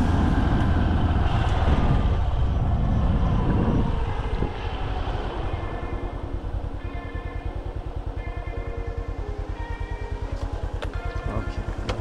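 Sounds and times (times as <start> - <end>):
wind on microphone: 0.0 - 6.8
vehicle engine running: 0.0 - 12.0.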